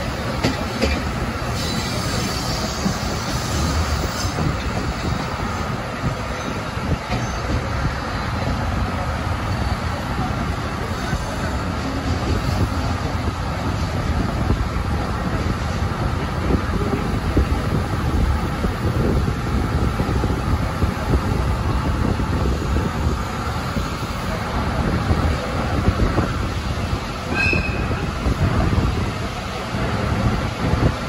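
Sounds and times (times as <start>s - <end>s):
train wheels rumbling: 0.0s - 31.0s
high wheel squeal: 1.5s - 5.2s, 27.3s - 28.1s.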